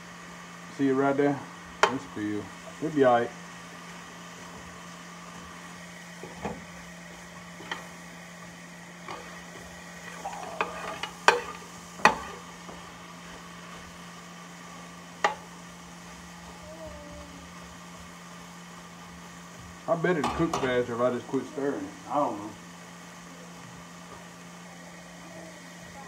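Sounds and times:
vegetables sizzling in butter: 0:00.0 - 0:26.0
metal spoon clanking on pan: 0:10.6 - 0:12.4.

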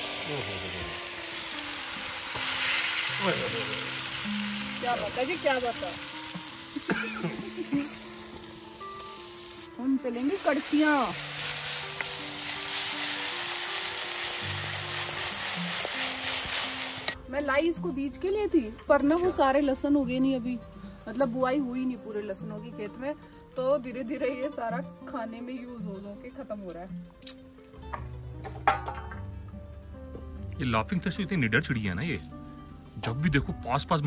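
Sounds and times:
onion sizzling in hot oil: 0:00.0 - 0:25.6.

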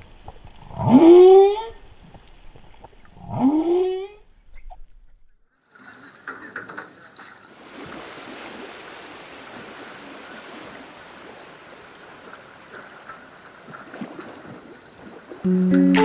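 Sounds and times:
sea water splashing and lapping: 0:05.6 - 0:15.5.

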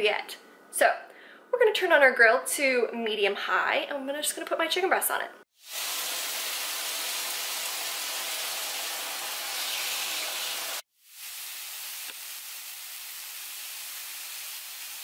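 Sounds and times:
chicken sizzling on griddle: 0:05.6 - 0:15.0.

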